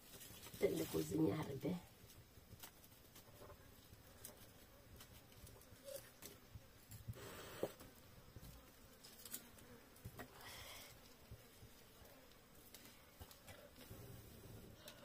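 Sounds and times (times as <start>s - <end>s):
firewood rustling and scraping: 0.0s - 7.6s.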